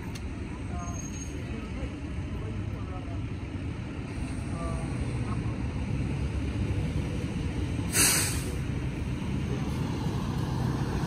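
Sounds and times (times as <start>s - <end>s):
street traffic rumble: 0.0s - 11.0s
sharp hiss of air: 7.9s - 8.7s.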